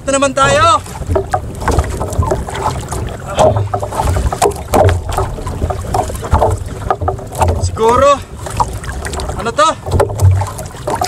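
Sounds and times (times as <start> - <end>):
water slapping boat hull: 0.0 - 11.0
wind buffeting microphone: 0.0 - 11.0
sharp knocks and clicks: 1.0 - 2.7, 3.4 - 7.8, 8.6 - 11.0.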